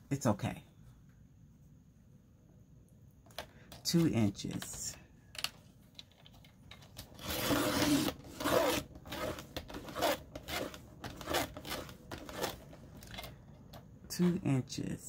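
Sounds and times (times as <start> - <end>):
paper scraping on plastic: 7.2 - 12.8.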